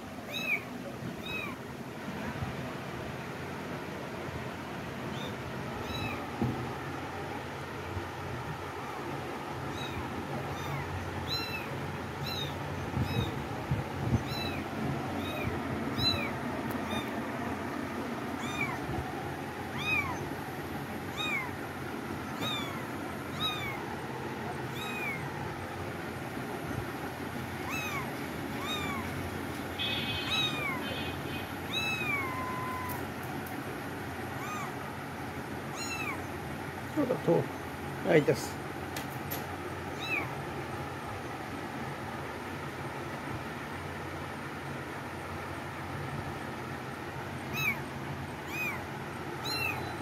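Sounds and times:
kitten mewing: 0.3 - 1.6, 5.1 - 6.3, 9.7 - 13.4, 14.0 - 17.2, 18.4 - 19.1, 19.7 - 20.3, 21.1 - 21.6, 22.2 - 25.4, 27.6 - 29.2, 29.8 - 33.1, 34.3 - 34.8, 35.7 - 36.2, 39.9 - 40.4, 47.5 - 49.9.

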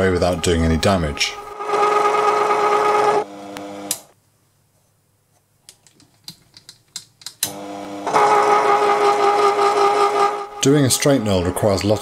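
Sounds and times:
mini lathe running: 1.5 - 4.0, 7.5 - 11.8.

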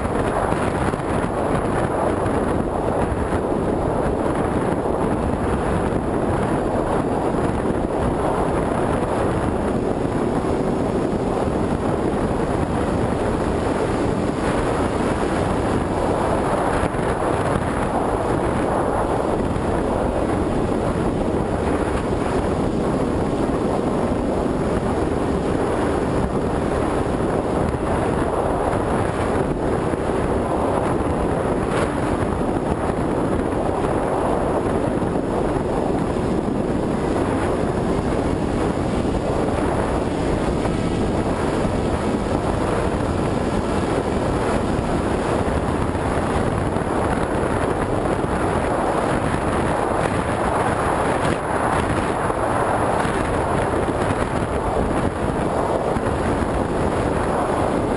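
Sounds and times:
wind rushing over microphone: 0.0 - 57.9.

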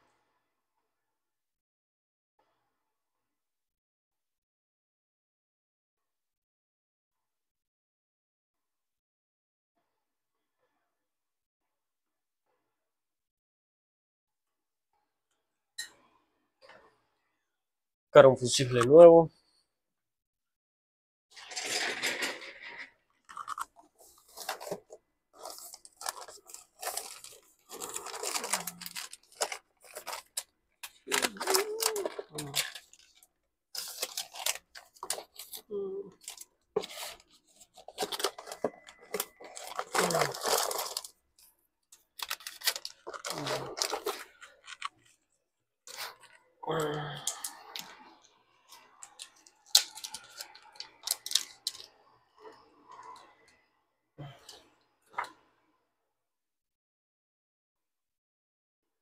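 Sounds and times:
plastic bags crinkling: 21.4 - 33.2, 33.8 - 35.6, 36.2 - 41.2, 42.0 - 45.2, 48.7 - 51.9.

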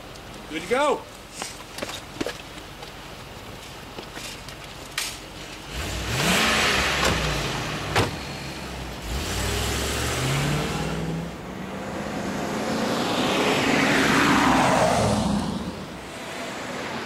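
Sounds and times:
suv engine starting and revving: 5.6 - 17.0
car door slams: 7.9 - 8.2.

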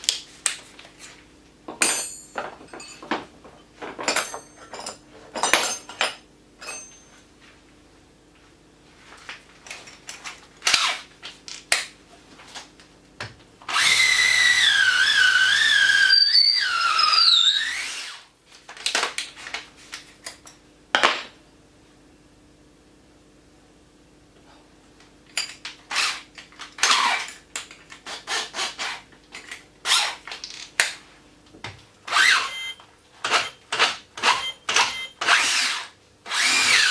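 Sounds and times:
metallic clinks and knocks: 1.8 - 3.3, 4.0 - 7.2
cordless drill motor whine: 13.7 - 18.2, 32.1 - 33.5, 34.2 - 36.9.

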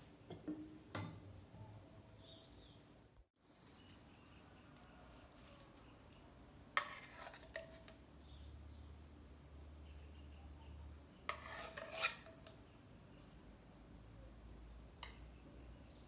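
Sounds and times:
faint bird chirps: 1.5 - 6.8.

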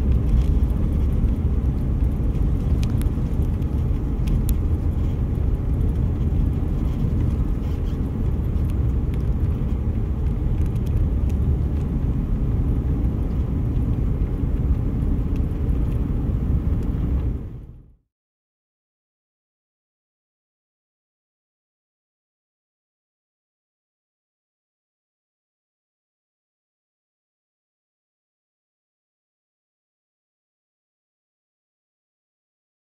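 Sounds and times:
car driving on paved road: 0.0 - 18.0.

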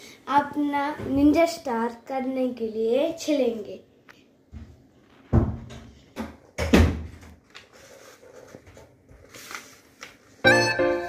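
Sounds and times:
paper folding rustle: 7.2 - 10.5.

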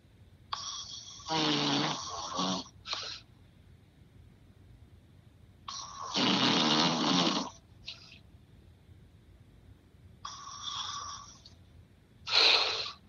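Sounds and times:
man snoring: 0.6 - 2.7, 5.7 - 7.6.

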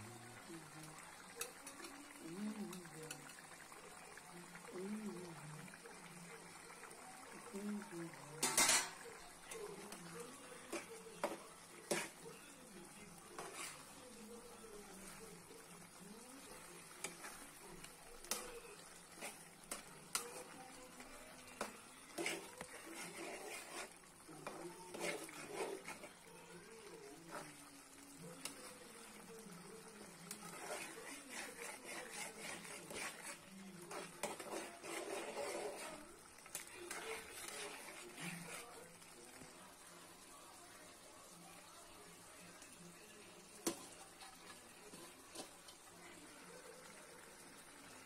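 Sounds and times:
spatula scraping metal pot: 8.4 - 12.4, 13.2 - 14.0, 16.4 - 26.2, 30.0 - 38.9, 44.9 - 45.7.

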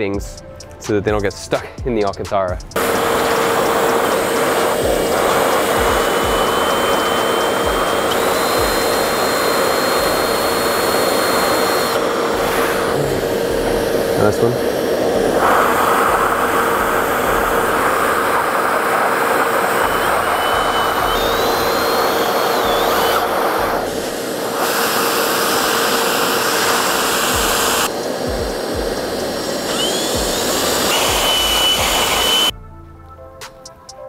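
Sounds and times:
cordless drill boring into metal: 2.8 - 32.5
vacuum cleaner running: 2.8 - 32.5.

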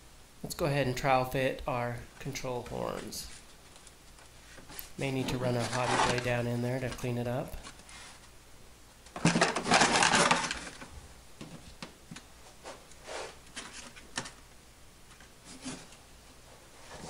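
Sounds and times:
light rubs and scrapes: 4.4 - 6.6, 12.5 - 13.4.

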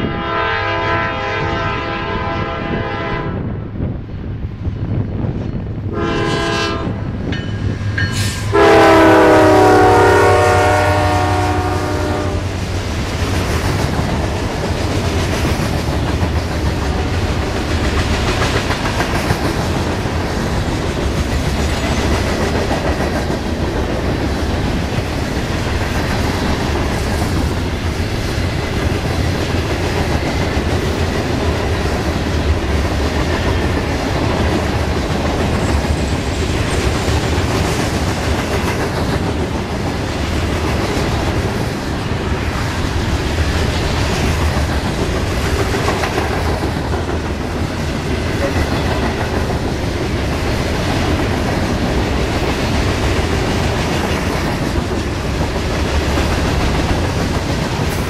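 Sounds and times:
locomotive air horn chord: 0.0 - 3.5, 5.9 - 7.0, 8.2 - 12.5.

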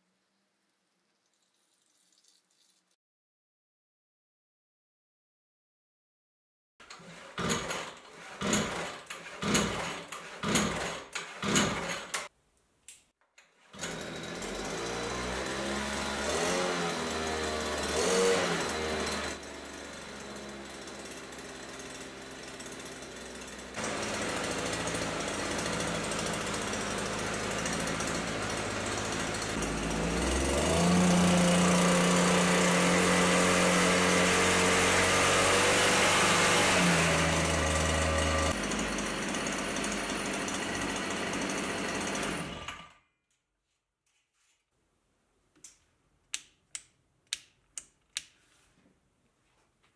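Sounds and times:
starter cord tugs: 6.8 - 12.2
brushcutter engine revving: 7.0 - 12.1, 13.8 - 42.9.

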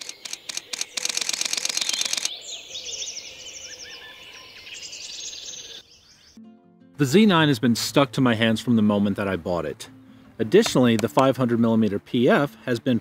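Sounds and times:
camera shutter clicking: 0.0 - 2.3
small bird singing: 0.0 - 6.4.

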